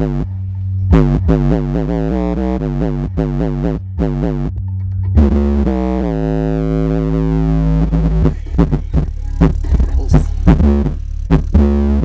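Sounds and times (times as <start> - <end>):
bass-heavy music through subwoofer: 0.0 - 12.0.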